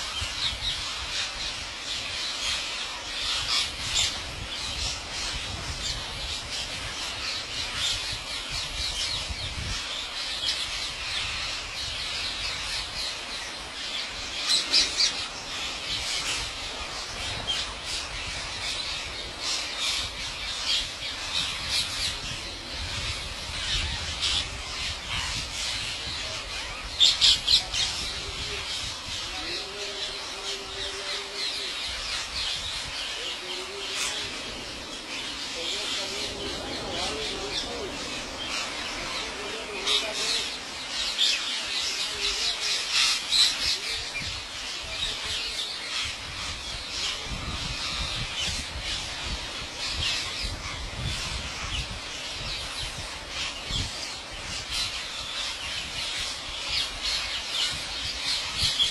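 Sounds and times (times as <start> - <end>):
parakeets squawking: 13.8 - 51.9.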